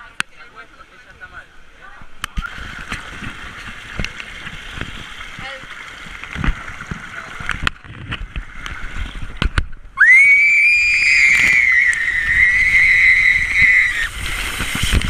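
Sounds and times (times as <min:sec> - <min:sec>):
water rushing and splashing: 0:00.1 - 0:15.0
high-pitched scream: 0:10.0 - 0:14.2.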